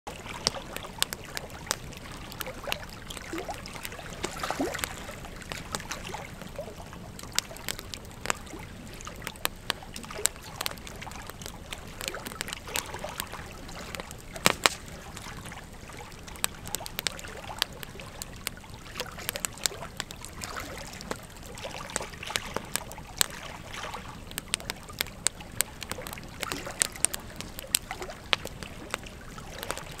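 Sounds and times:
logs crackling and popping: 0.1 - 30.0
low rush of flame: 0.2 - 20.4.

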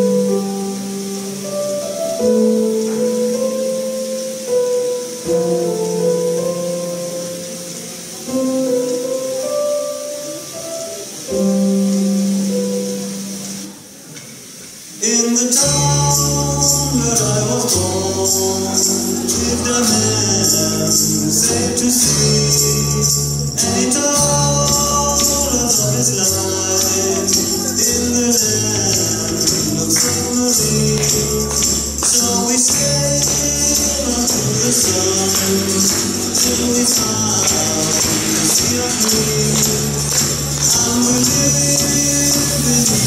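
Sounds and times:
song with jingling percussion: 15.6 - 43.0.

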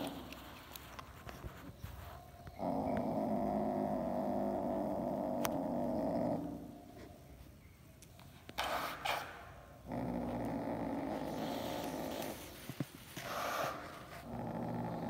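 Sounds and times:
cat growling low: 2.5 - 6.7, 9.8 - 15.0.

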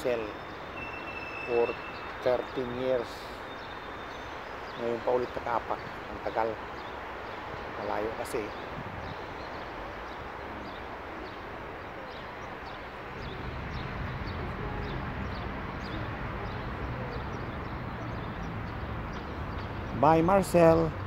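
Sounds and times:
open-air city noise: 0.0 - 21.0.

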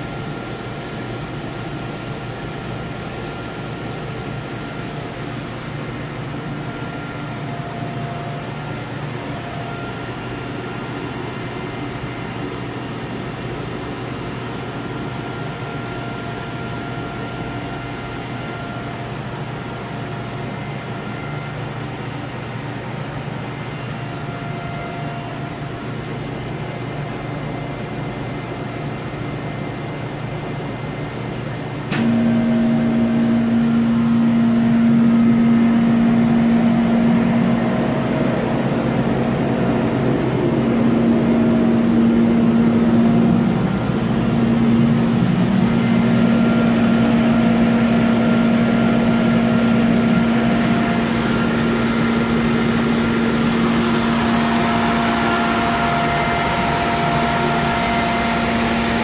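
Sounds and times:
machine humming: 0.0 - 27.6, 31.8 - 59.0
click: 31.9 - 32.2.

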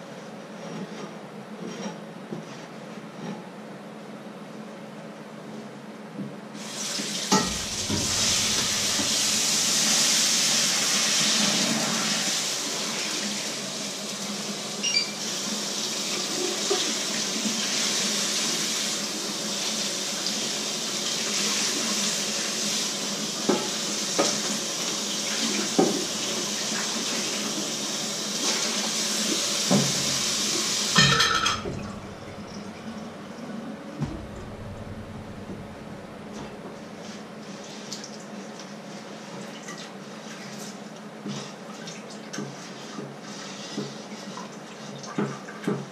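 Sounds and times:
tap running into sink: 7.0 - 10.2, 25.7 - 26.3, 29.6 - 33.4, 34.0 - 36.8
frying pan knocking on sink: 7.3 - 10.1, 29.7 - 33.2, 34.0 - 36.8.

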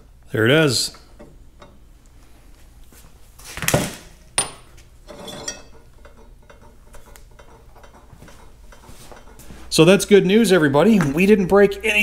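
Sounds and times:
metal parts clinking on vise: 4.4 - 9.4.

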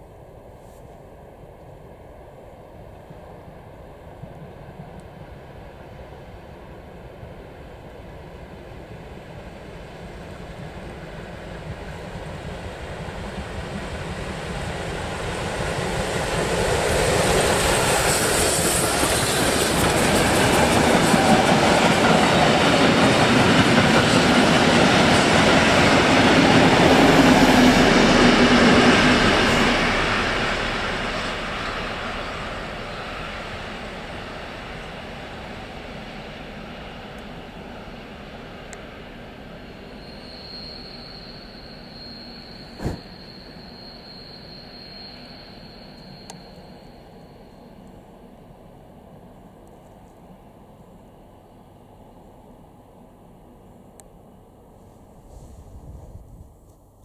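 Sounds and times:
steam locomotive passing: 1.1 - 49.4.

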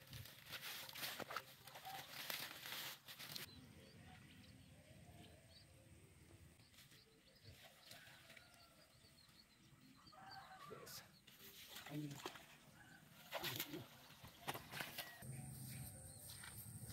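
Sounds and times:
leaves rustling in water: 0.0 - 3.5.

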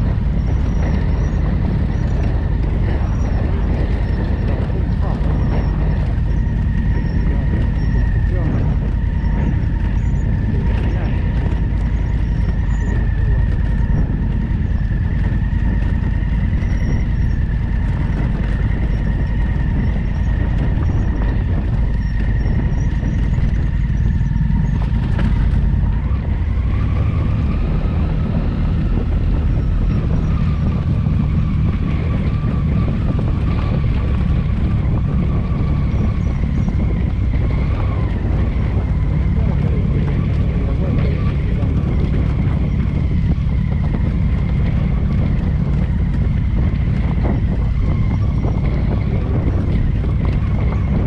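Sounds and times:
motorcycle engine rumble: 0.0 - 51.0
wind noise on microphone: 0.0 - 51.0.

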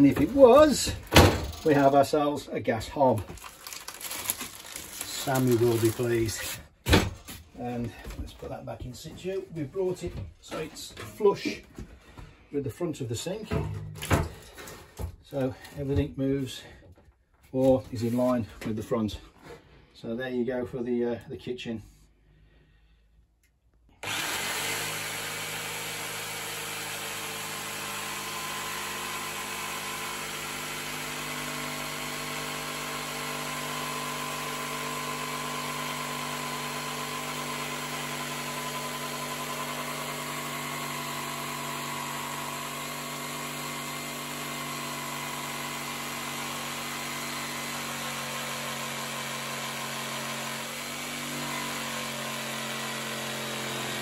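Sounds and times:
jigsaw cutting wood: 0.0 - 2.1, 3.0 - 7.3, 23.9 - 54.0.

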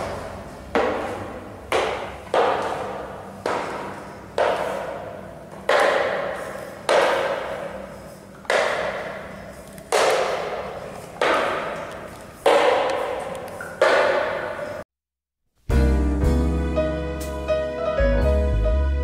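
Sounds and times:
loud echoing hits: 0.0 - 14.8.

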